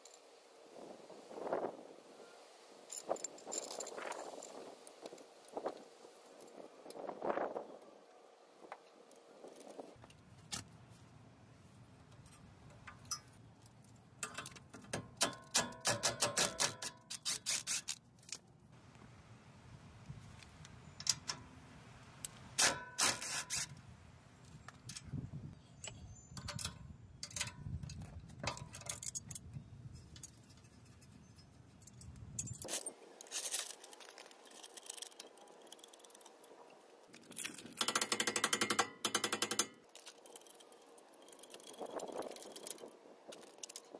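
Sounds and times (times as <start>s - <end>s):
rapid ratchet clicking: 37.7s - 40.4s.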